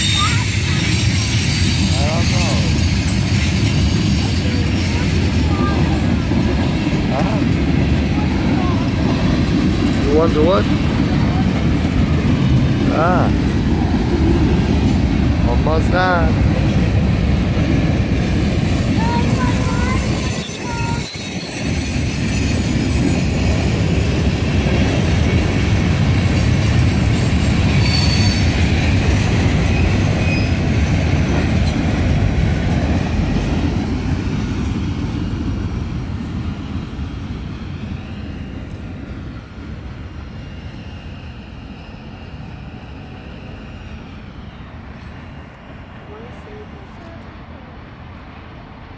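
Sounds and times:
high wheel squeal: 0:00.0 - 0:05.8, 0:18.2 - 0:28.8, 0:29.6 - 0:30.7
train wheels rumbling and clattering: 0:00.0 - 0:47.4.

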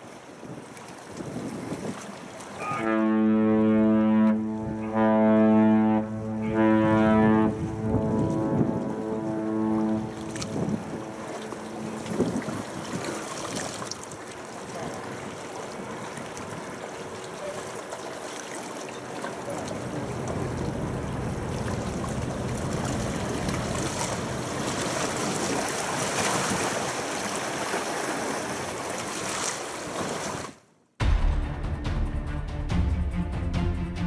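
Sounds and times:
sea water washing at shore: 0:00.0 - 0:30.7
wind on microphone: 0:00.4 - 0:02.8, 0:04.5 - 0:13.7
low steady rumble: 0:02.8 - 0:13.4, 0:19.5 - 0:24.9.

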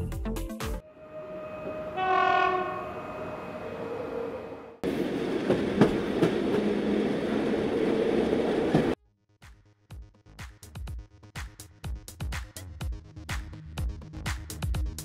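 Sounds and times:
train horn: 0:00.8 - 0:04.8
subway train rumbling: 0:00.8 - 0:09.0.

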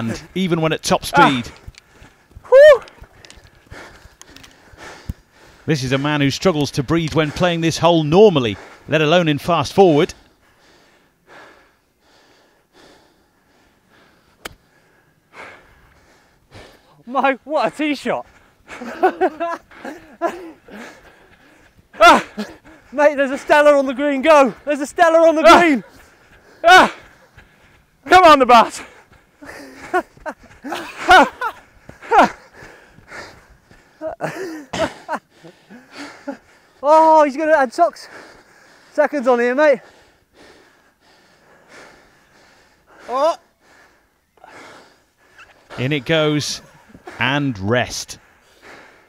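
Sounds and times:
man panting: 0:01.1 - 0:06.2, 0:07.0 - 0:09.2, 0:09.8 - 0:49.0
man gasping and grunting: 0:18.3 - 0:23.2, 0:25.4 - 0:27.8, 0:28.6 - 0:36.8, 0:39.8 - 0:49.0.

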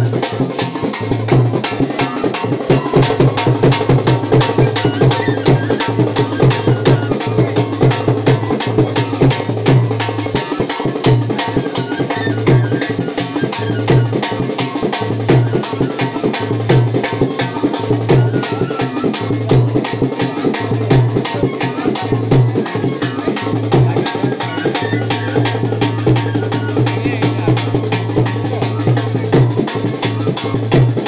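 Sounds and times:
fast drum beat: 0:00.0 - 0:31.0.

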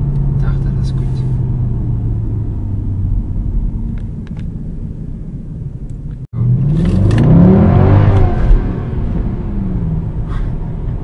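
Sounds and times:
car engine from inside cabin: 0:00.0 - 0:11.0.

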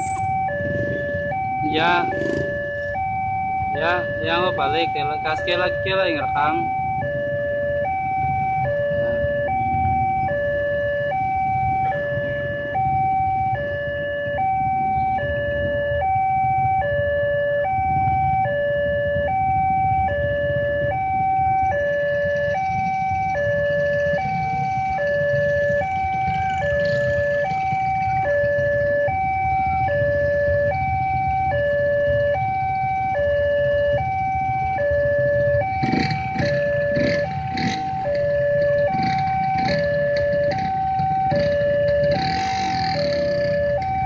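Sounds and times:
two-note crossing alarm tone: 0:00.0 - 0:16.2
idling motorcycle and truck engines: 0:00.0 - 0:44.0.

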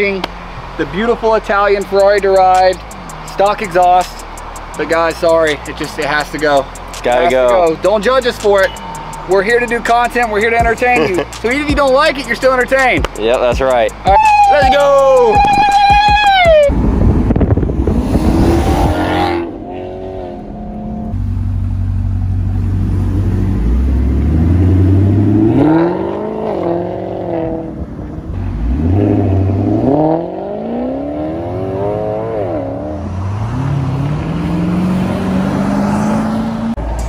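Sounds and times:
car engine accelerating hard: 0:15.4 - 0:37.0.

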